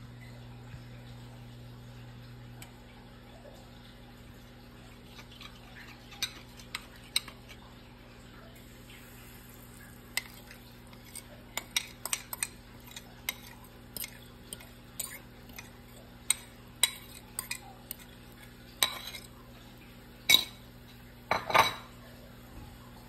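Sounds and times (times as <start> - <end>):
fork scraping mixing bowl: 5.1 - 7.6, 10.1 - 19.4
batter pouring into frying pan: 8.6 - 15.9.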